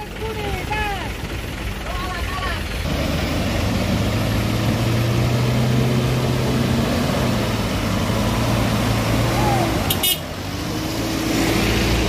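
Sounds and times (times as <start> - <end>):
truck diesel engine under load: 0.0 - 12.0.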